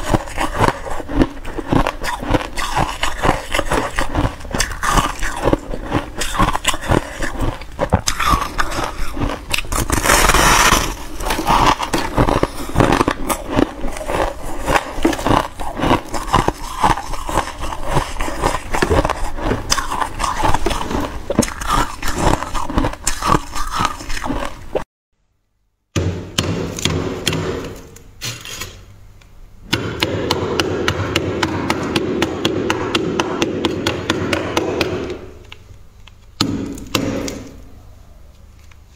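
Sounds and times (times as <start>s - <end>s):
freezer frost being scraped: 0.0s - 24.6s
ice being chewed: 0.0s - 24.8s.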